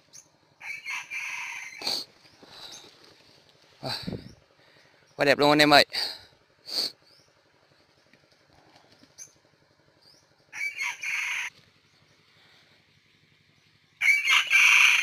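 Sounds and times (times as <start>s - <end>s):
rooster crowing: 0.6s - 1.9s, 10.5s - 11.6s, 14.0s - 15.0s.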